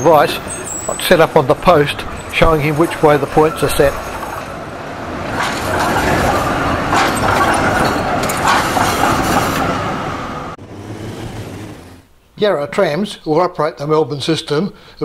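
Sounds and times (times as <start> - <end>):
tram wheels rumbling on rails: 0.0 - 12.1
wheels knocking over track points: 5.3 - 9.7.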